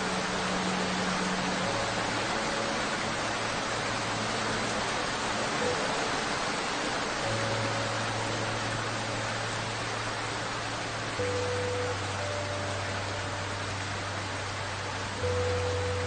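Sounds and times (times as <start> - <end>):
heavy rain on leaves: 0.0 - 16.0
faint low held tones: 7.3 - 16.0.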